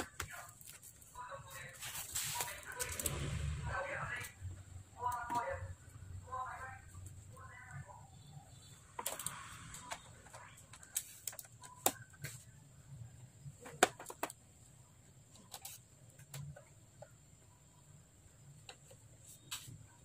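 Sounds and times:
scraping rustle: 0.4 - 3.4.

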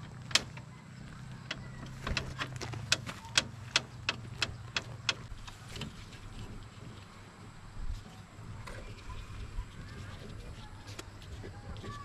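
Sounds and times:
sharp clicks: 1.4 - 5.9.

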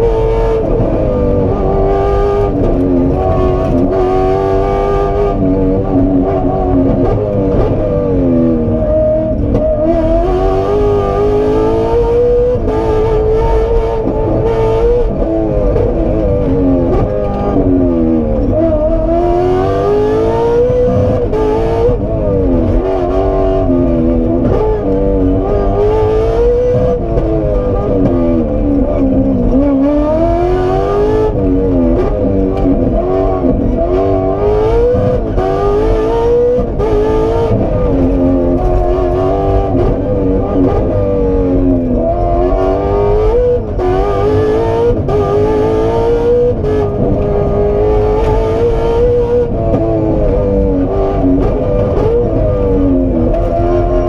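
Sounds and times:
car engine revving: 0.0 - 54.0
low rumble of road: 0.0 - 54.0.

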